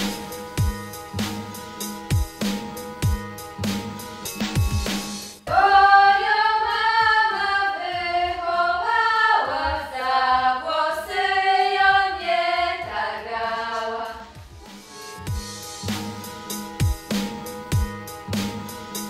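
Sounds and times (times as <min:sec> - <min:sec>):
music track with drums: 0:00.0 - 0:10.0, 0:12.7 - 0:19.0
choir singing held notes: 0:05.5 - 0:14.4.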